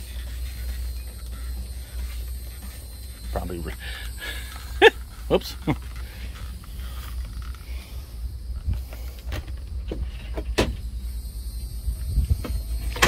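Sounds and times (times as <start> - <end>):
wind rumbling on microphone: 6.8 - 13.0.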